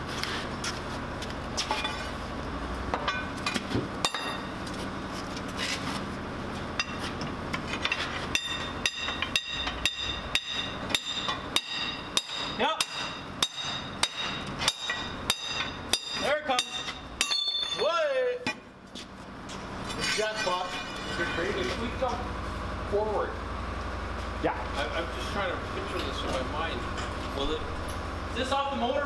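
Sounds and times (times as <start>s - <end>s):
hammer ringing on steel: 8.4s - 18.0s.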